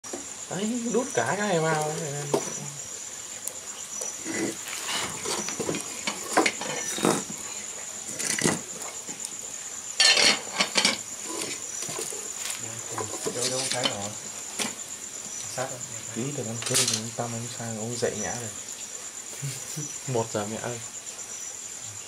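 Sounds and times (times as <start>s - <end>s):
bamboo knocking and scraping in fire: 1.2s - 2.8s, 3.4s - 17.3s.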